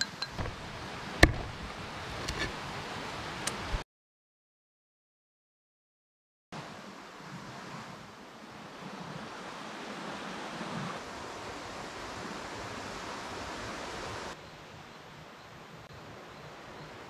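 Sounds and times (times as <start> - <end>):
stream water rushing: 0.0 - 3.8, 6.6 - 14.8.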